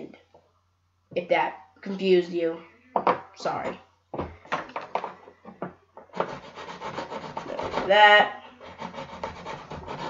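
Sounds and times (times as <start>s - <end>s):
knife scraping wooden dowel: 6.1s - 10.0s.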